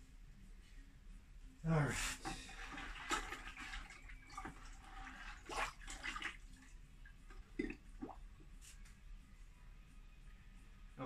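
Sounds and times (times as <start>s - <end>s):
liquid glaze sloshing and dripping: 2.2s - 8.3s.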